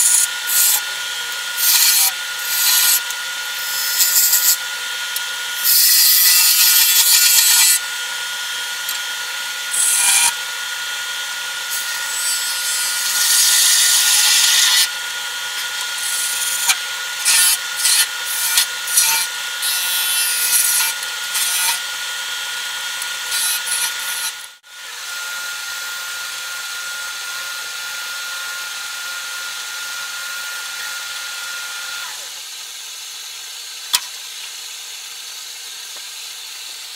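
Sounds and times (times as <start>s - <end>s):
chisel cutting hissing shavings: 0.0s - 7.8s, 9.7s - 10.4s, 11.7s - 14.9s, 15.5s - 21.9s, 23.0s - 24.4s
wood lathe whining: 0.0s - 32.6s.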